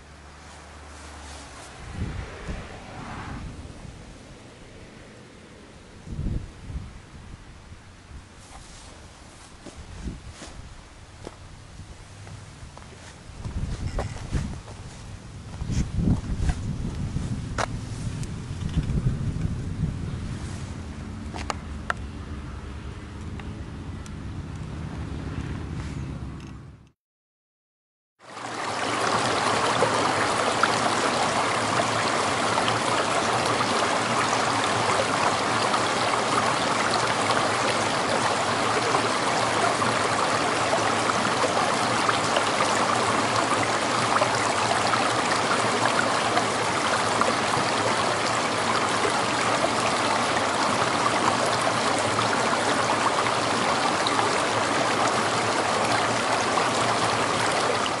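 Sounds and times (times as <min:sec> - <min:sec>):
stream babbling over stones: 0:28.2 - 0:58.0.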